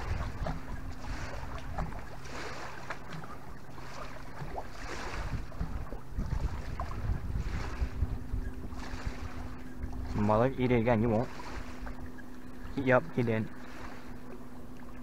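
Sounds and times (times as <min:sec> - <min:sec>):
wind buffeting microphone: 0:00.0 - 0:14.1
small waves lapping at shore: 0:00.0 - 0:15.0.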